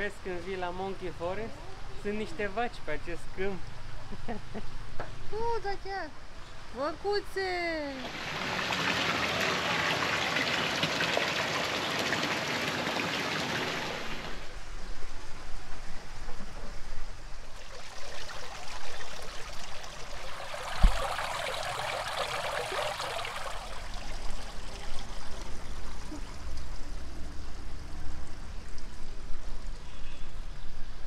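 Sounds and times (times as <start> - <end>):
water splashing onto stones: 8.0 - 14.5, 17.5 - 27.0
low thump: 20.8 - 21.0.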